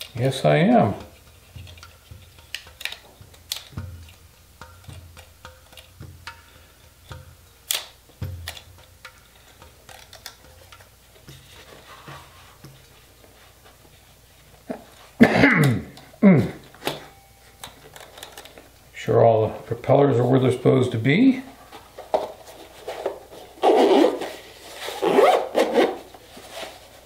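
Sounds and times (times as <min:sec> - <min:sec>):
plastic clicks and knocks: 0:01.6 - 0:06.5, 0:07.1 - 0:11.4.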